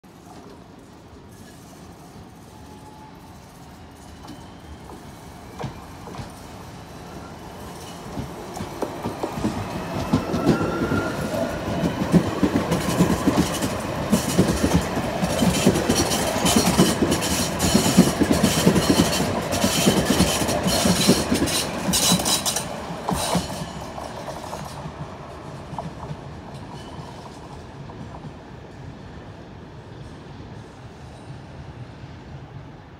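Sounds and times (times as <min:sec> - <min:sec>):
tram motor whine: 0:02.5 - 0:23.1
wheels clacking over rail joints: 0:07.8 - 0:28.2.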